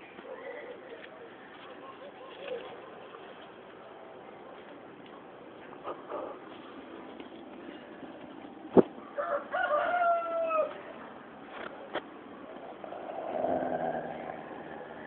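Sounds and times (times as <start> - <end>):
rooster crowing: 9.2 - 10.7.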